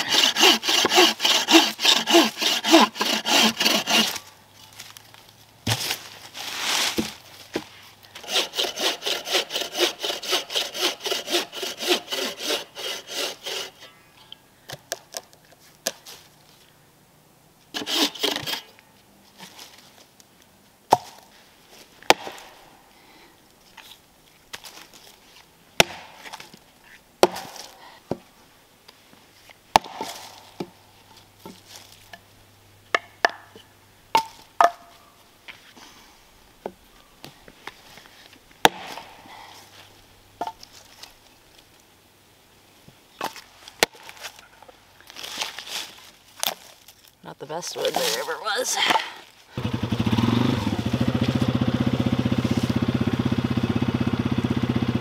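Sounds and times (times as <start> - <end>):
saw cutting through log: 0.0 - 4.2, 8.2 - 13.8, 17.8 - 18.6, 49.6 - 54.9.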